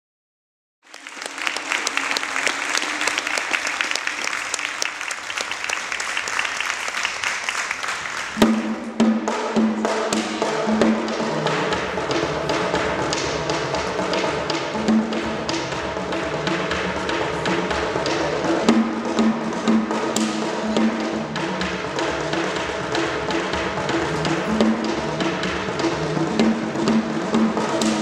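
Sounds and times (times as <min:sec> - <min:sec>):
audience applause: 0:00.9 - 0:08.6
hand drums playing rhythm: 0:01.1 - 0:28.0.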